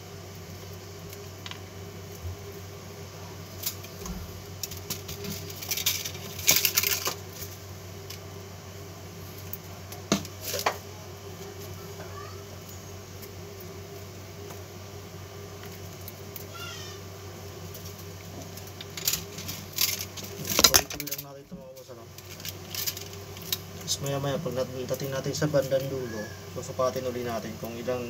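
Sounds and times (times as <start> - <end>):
wire winding clicks and rustles: 3.6 - 8.2, 17.7 - 26.0.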